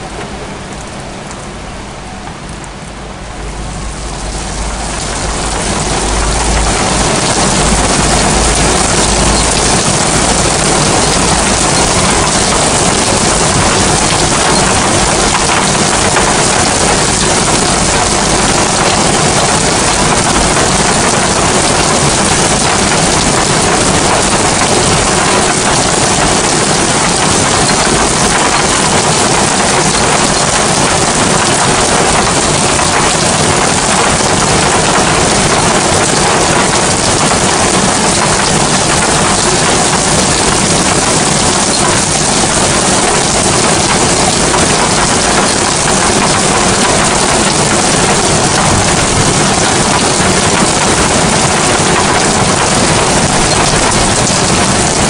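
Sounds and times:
heavy rain on roofs: 0.0 - 55.0
low rumble: 2.6 - 14.1.

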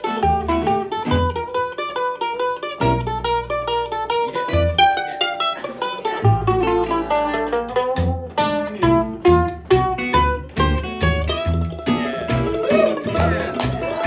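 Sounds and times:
mandolin picking single notes: 0.0 - 14.0
low bass notes: 2.8 - 14.0.

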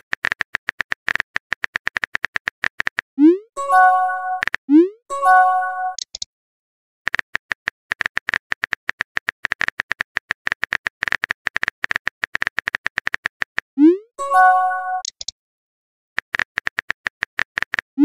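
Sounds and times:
notification chime: 3.6 - 4.4, 5.1 - 6.0, 14.2 - 15.1
phone keyboard typing clicks: 5.9 - 6.3, 7.1 - 13.7, 15.0 - 15.3, 16.2 - 17.8.

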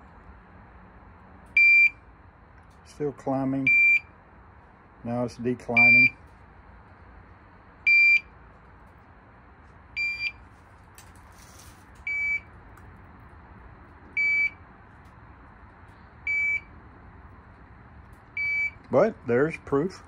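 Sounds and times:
carbon monoxide detector beeping: 1.5 - 2.0, 3.6 - 4.1, 5.8 - 6.2, 7.9 - 8.3, 10.0 - 10.4, 12.0 - 12.5, 14.2 - 14.6, 16.2 - 16.7, 18.3 - 18.9.

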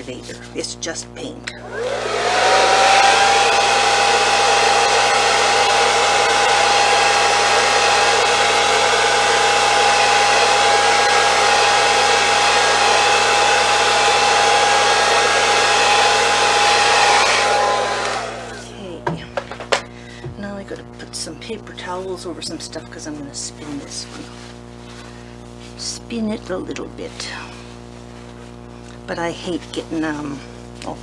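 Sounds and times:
hair dryer running: 1.6 - 20.6.

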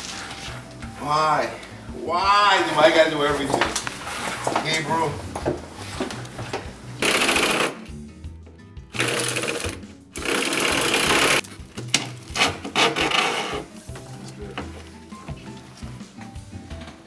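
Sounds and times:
background music: 0.0 - 17.0
cordless drill boring wood: 9.0 - 11.4, 12.4 - 13.6.

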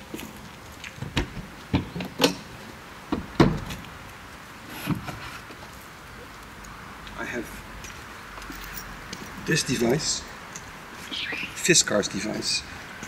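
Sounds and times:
sharp knocks and clunks: 3.1 - 3.8.

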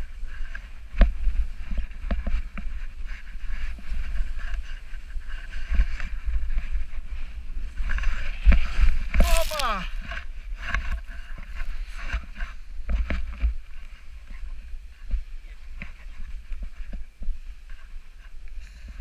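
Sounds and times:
wind rumbling on microphone: 0.0 - 19.0
snowboard scraping over snow: 0.1 - 12.7.

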